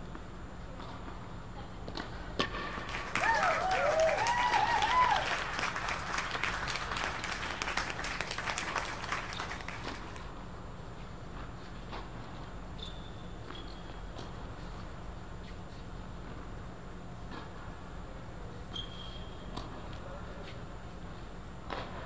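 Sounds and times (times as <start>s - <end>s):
spectators clapping: 2.8s - 10.3s
voices cheering: 2.9s - 10.0s.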